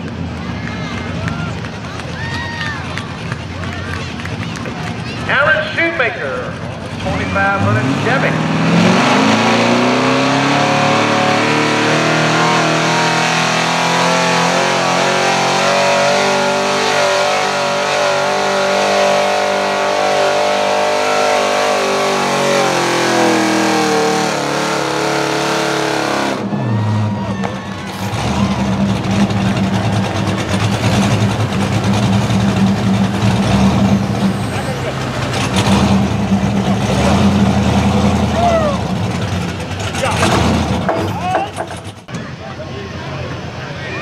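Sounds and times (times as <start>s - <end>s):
truck engine idling: 0.0s - 8.4s, 19.5s - 44.0s
truck engine revving under load: 6.2s - 42.2s.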